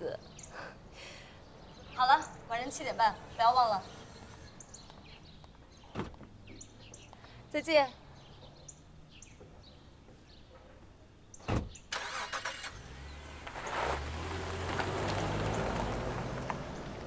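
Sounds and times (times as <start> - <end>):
car door shutting: 11.4 - 11.8
small car engine running: 12.0 - 17.0.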